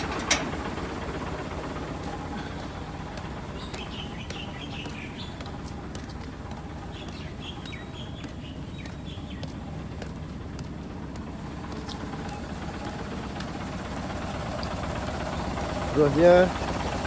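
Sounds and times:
diesel engine idling: 0.0s - 17.0s
footsteps on concrete: 2.0s - 14.0s.

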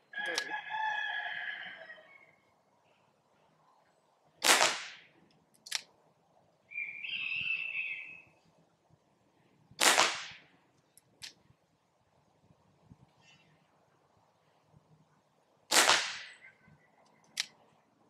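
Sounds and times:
drawn-out high call: 6.7s - 8.4s.

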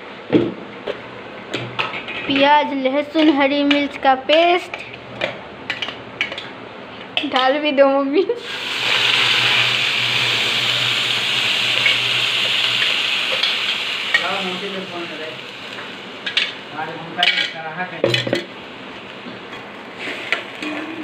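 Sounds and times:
paste sizzling in hot oil: 8.4s - 17.4s.

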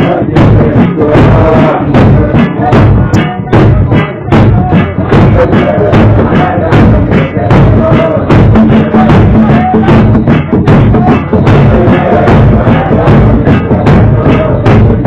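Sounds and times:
group singing a hymn: 0.0s - 2.7s, 4.8s - 9.7s, 11.6s - 15.0s
large drum beating: 0.0s - 15.0s.

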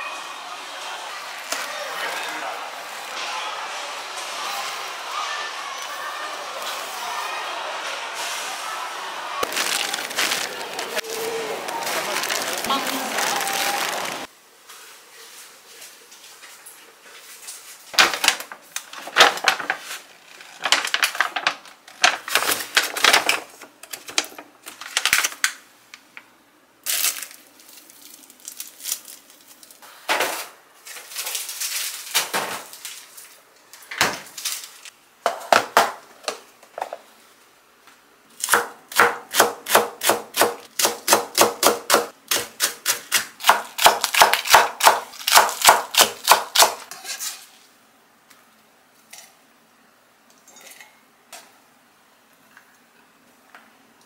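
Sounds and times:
food packages rustling: 9.4s - 26.0s, 26.8s - 35.0s.

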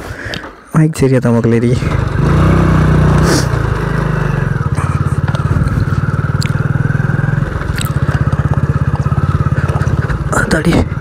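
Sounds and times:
motorcycle engine running: 1.6s - 11.0s
sharp clicks: 6.3s - 6.7s.

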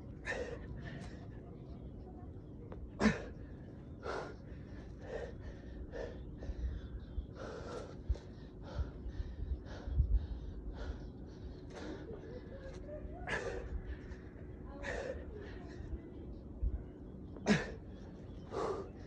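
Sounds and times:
man gasping breaths: 18.5s - 19.0s.

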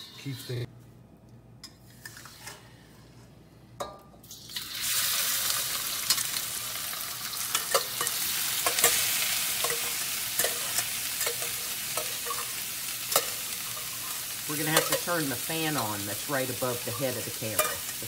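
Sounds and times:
meat sizzling in a wok: 4.3s - 18.0s.

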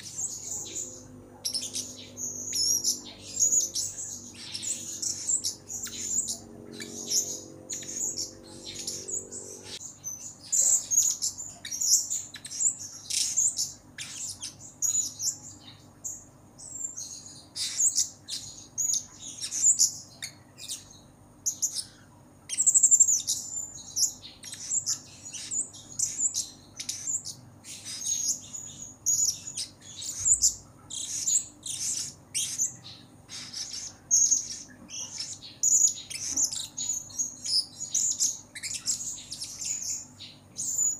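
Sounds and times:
parrot chirping: 0.0s - 15.6s, 16.7s - 40.9s.

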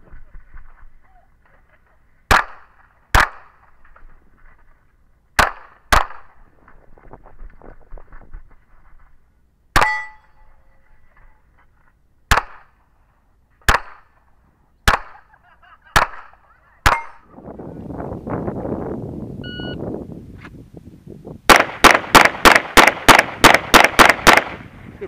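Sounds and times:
rough rustling noise: 0.0s - 5.3s, 6.3s - 9.6s
pistol shots: 2.3s - 3.6s, 5.4s - 6.4s, 12.3s - 12.8s, 13.7s - 14.1s, 14.8s - 15.2s, 15.9s - 17.2s, 21.5s - 24.6s
shot timer beep: 19.4s - 19.8s.

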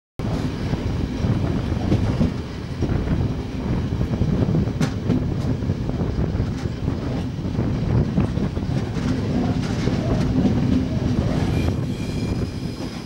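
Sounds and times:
train wheel rumble: 0.2s - 13.0s
wheels clicking over rail joints: 4.7s - 11.5s.

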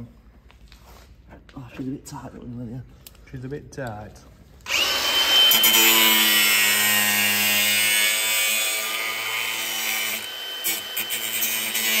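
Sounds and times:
angle grinder cutting: 4.7s - 12.0s.

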